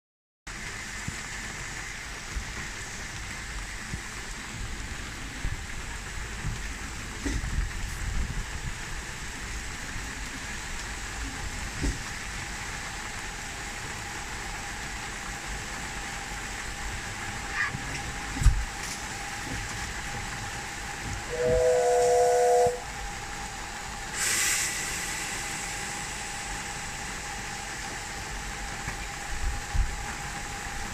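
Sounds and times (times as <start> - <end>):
rain: 0.5 - 30.9
steam locomotive hissing: 0.5 - 30.9
burst of escaping steam: 20.3 - 30.9
two-note steam whistle blast: 21.2 - 23.3, 24.1 - 26.8.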